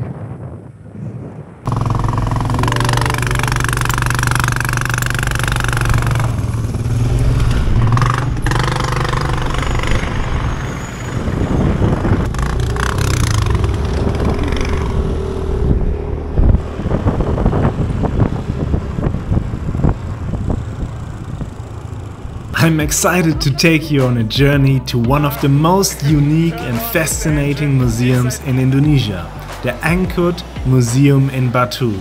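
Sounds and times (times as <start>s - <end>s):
motor scooter engines running: 1.7s - 24.6s.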